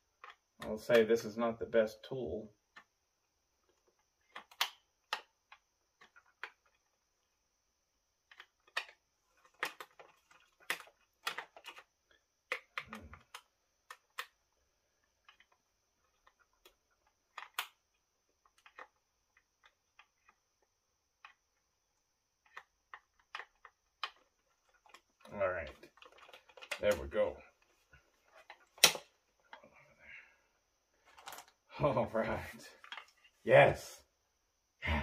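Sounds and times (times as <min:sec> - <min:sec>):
plastic clicks and taps: 0:03.7 - 0:06.8.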